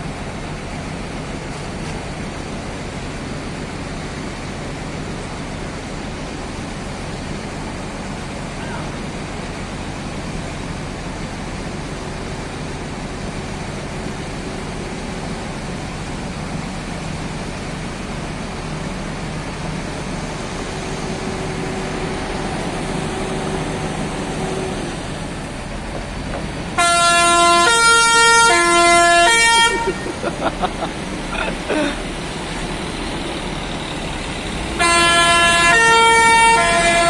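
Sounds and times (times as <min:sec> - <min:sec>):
bus engine running: 0:00.0 - 0:37.0
melodic bus horn: 0:26.8 - 0:30.2, 0:34.7 - 0:37.0.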